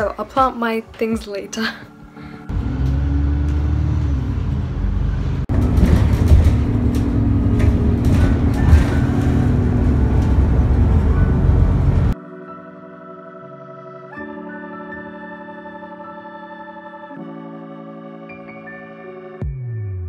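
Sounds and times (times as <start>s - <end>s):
bus engine and road rumble: 2.5s - 12.2s.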